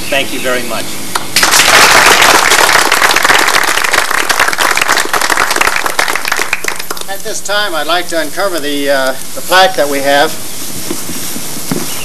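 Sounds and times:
audience applauding: 1.4s - 7.2s.

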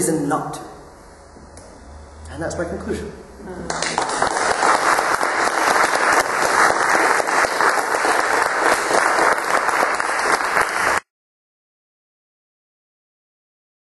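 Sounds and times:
audience applauding: 3.7s - 11.1s.

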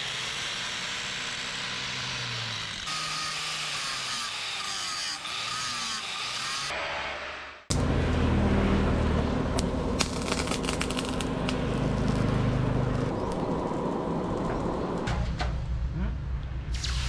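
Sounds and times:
burning coal crackling and popping: 9.5s - 15.0s.

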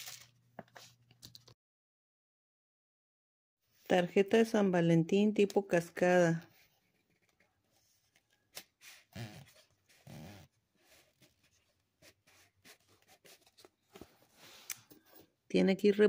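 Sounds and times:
paper card rustling: 0.0s - 1.6s, 10.9s - 14.7s.

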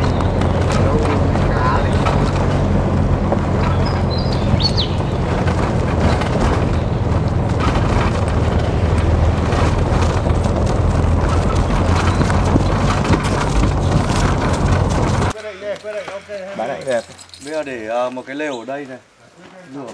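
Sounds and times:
vehicle engine drone: 0.0s - 15.4s
vehicle rattles and knocks: 0.0s - 15.4s
road noise: 0.0s - 19.9s.

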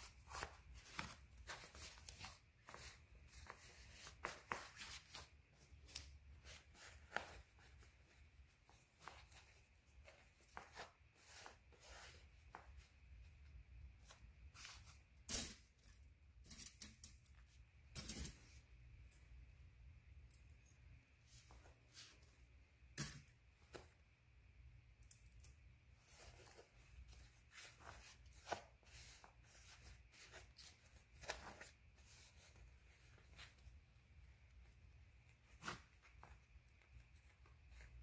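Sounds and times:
satin fabric rustling: 0.0s - 15.2s, 21.1s - 22.6s, 25.8s - 38.0s.

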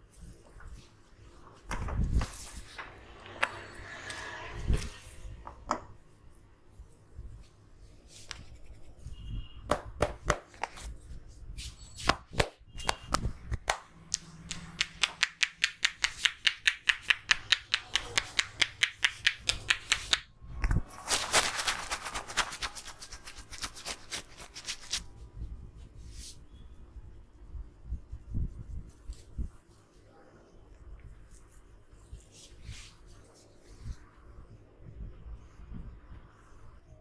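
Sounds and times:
hands striking head in massage: 12.1s - 20.2s.

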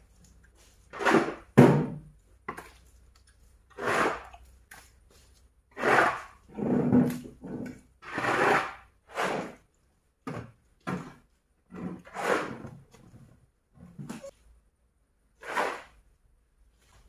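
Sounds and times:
shovel scraping manure: 0.6s - 1.5s, 3.7s - 6.5s, 8.0s - 9.6s, 11.9s - 12.6s, 15.4s - 16.0s.

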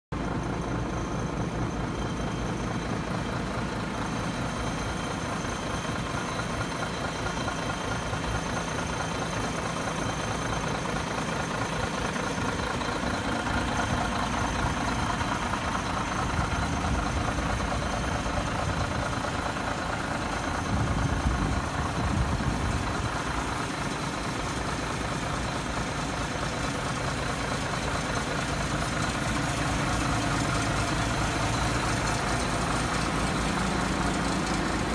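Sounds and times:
diesel engine idling: 0.1s - 34.9s.

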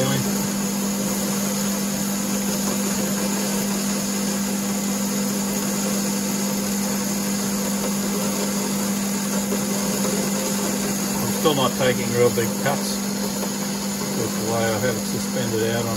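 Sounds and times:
cutting tool hissing on metal: 0.0s - 15.9s
lathe running with constant hum: 0.0s - 15.9s.

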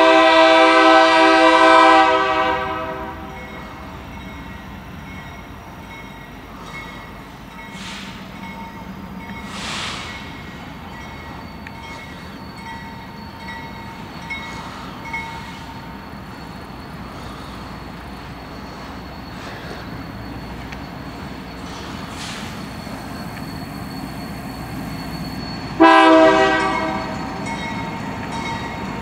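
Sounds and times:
locomotive engine rumble: 0.0s - 29.0s
brief hisses: 9.5s - 10.2s.

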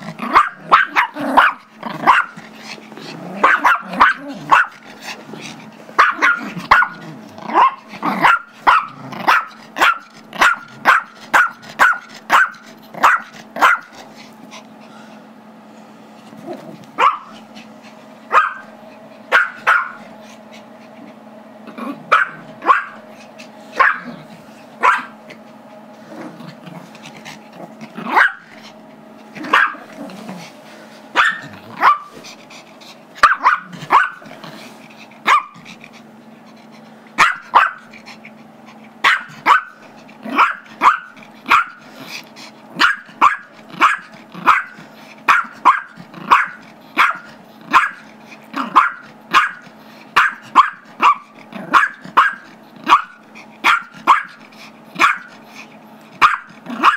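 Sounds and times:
dog growling: 0.0s - 11.0s, 16.3s - 18.1s, 20.1s - 24.6s, 26.0s - 30.6s, 31.4s - 36.9s, 37.6s - 56.9s
small dog barking: 0.2s - 2.4s, 3.4s - 4.8s, 6.0s - 13.9s, 17.0s - 17.4s, 18.3s - 18.7s, 19.3s - 20.0s, 22.0s - 23.0s, 23.8s - 24.2s, 24.8s - 25.2s, 28.0s - 28.5s, 29.4s - 29.9s, 31.1s - 32.2s, 33.2s - 34.3s, 35.2s - 35.6s, 37.2s - 37.9s, 39.0s - 41.8s, 42.8s - 48.0s, 48.6s - 49.6s, 50.2s - 54.4s, 55.0s - 55.3s, 56.2s - 56.9s.

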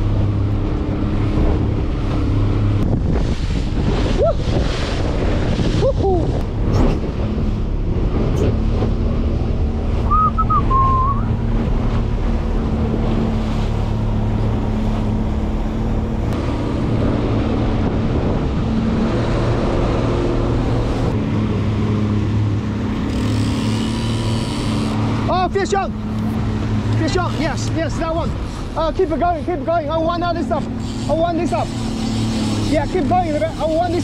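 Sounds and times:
wind buffeting microphone: 0.0s - 22.8s
boat engine running: 0.0s - 34.0s
water rushing past hull: 0.0s - 34.0s
short two-note whistle: 10.1s - 11.3s.

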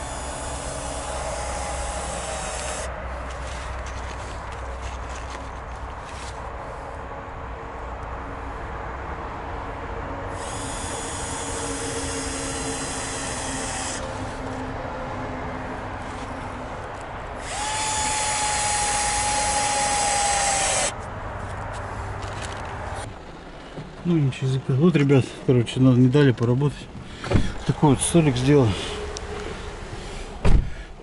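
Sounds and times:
cordless drill whining: 0.0s - 2.9s, 10.3s - 14.4s, 17.4s - 20.9s.

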